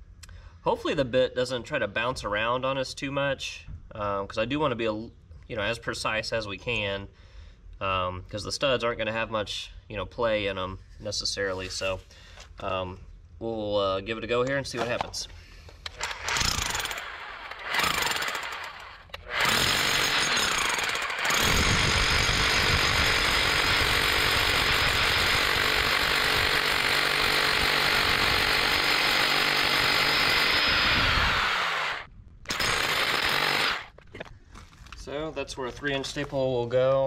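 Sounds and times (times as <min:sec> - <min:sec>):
hammer drill drilling into concrete: 0:15.9 - 0:33.9.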